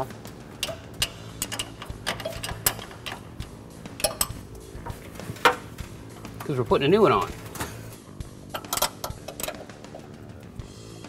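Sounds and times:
wrench clicking on metal nuts: 0:00.6 - 0:04.4, 0:08.5 - 0:10.0
metal knock: 0:04.0 - 0:05.7.

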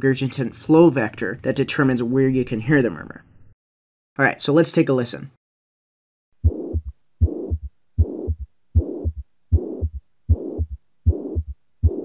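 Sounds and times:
heartbeat with murmur: 0:06.4 - 0:12.0.

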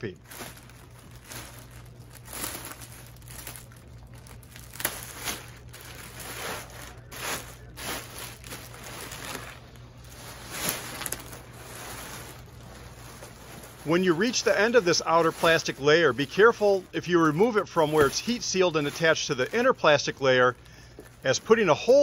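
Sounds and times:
faint low hum: 0:00.0 - 0:22.0
plastic wrapping crinkling: 0:00.0 - 0:22.0.

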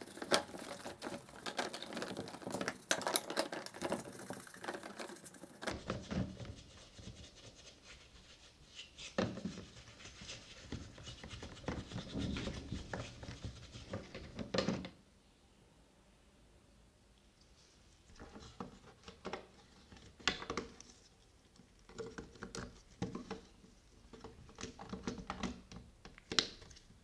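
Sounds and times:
brush scrubbing plastic: 0:00.0 - 0:14.6.

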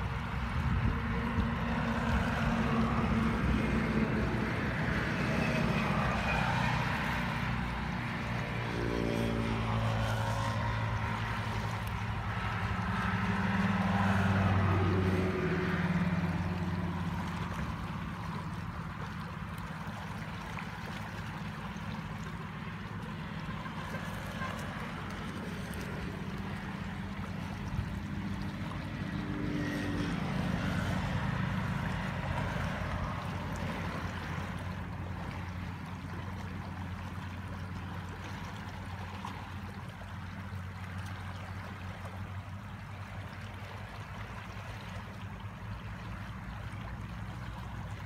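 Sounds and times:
truck engine drone: 0:00.0 - 0:19.6
floodwater rushing: 0:00.0 - 0:48.0.

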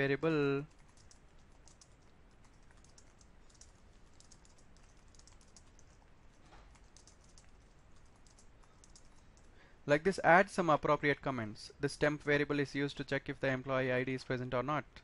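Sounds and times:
faint keyboard typing: 0:00.2 - 0:09.7.

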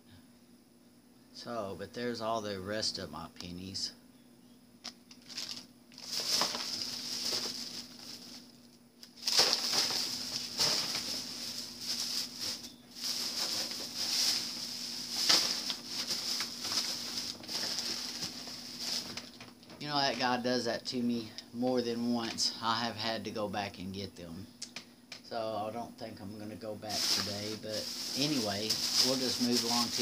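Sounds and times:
plastic bags rustling: 0:05.2 - 0:20.3, 0:26.8 - 0:30.0.

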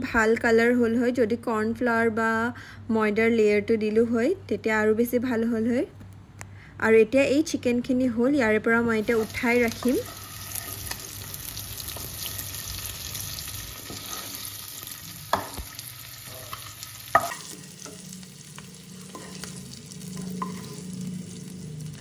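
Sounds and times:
chicken sizzling in hot oil: 0:09.0 - 0:22.0
wooden spatula scraping: 0:09.1 - 0:11.3, 0:13.7 - 0:14.6.

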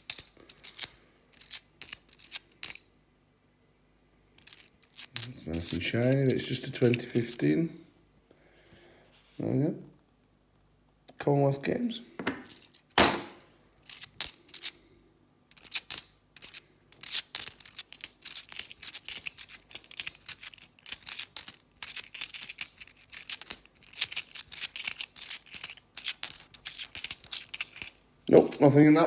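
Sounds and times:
coins clinking: 0:00.0 - 0:02.8, 0:04.4 - 0:07.5, 0:12.4 - 0:14.7, 0:15.5 - 0:28.8.

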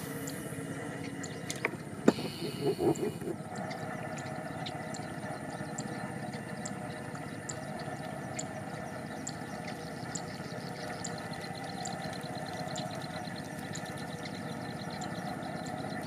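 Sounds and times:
pulsing motor drone: 0:00.0 - 0:16.0.

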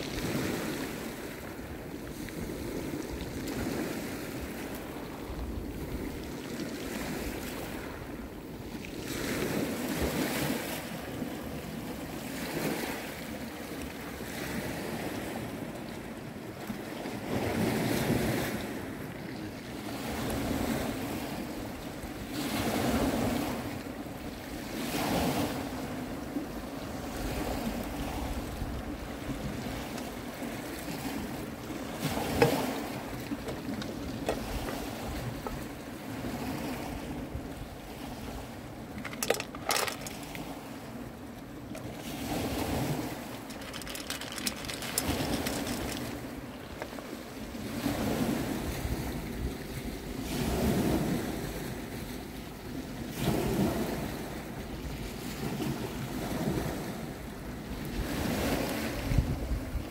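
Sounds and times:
waves washing over pebble beach: 0:00.0 - 0:15.6, 0:37.9 - 0:49.2
wind on microphone: 0:58.0 - 0:59.9.

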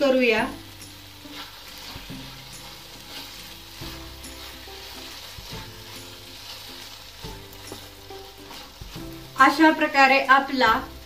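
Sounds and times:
soft background music: 0:00.0 - 0:11.0
spatula scraping pan: 0:01.2 - 0:09.8.

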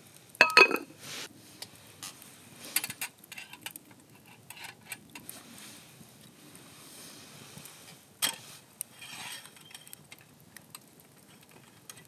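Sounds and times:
light taps and clicks of utensils: 0:00.4 - 0:00.9
metal cookware clinking: 0:00.4 - 0:00.9.

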